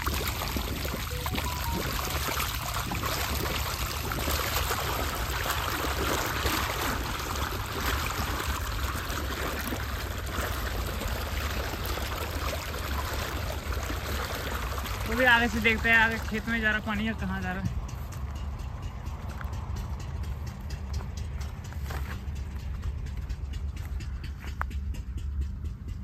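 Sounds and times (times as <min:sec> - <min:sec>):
low hum: 0:00.0 - 0:15.0
water gushing from a pipe: 0:00.0 - 0:17.6
water splashing into channel: 0:00.0 - 0:17.6.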